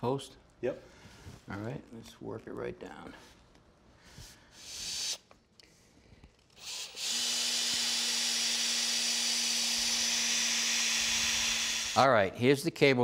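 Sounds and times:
cordless drill boring into wood: 6.6s - 12.0s.

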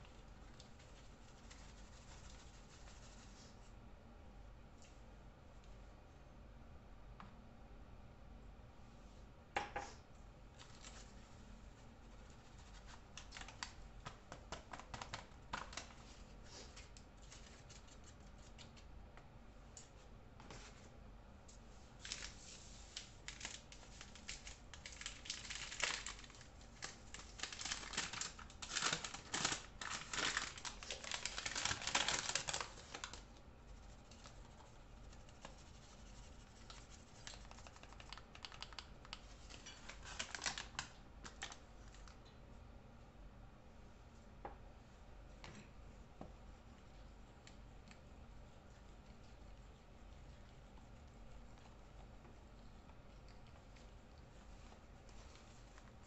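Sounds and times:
paper flour bag rustling: 21.9s - 38.2s, 39.3s - 41.6s.

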